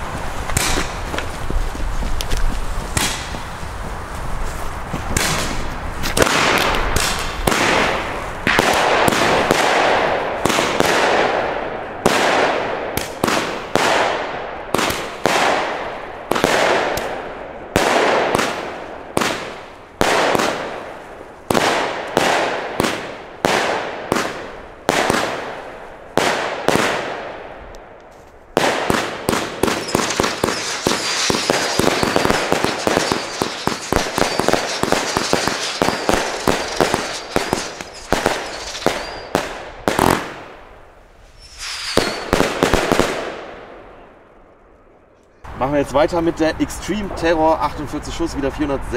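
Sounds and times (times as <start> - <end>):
firework crackling: 0.0 - 27.4, 28.5 - 43.4
firework shots and bursts: 0.4 - 1.3, 2.9 - 3.6, 5.0 - 27.7, 28.5 - 40.8, 41.4 - 43.8
high firework whistle: 29.8 - 36.4, 37.2 - 39.4, 41.3 - 42.4.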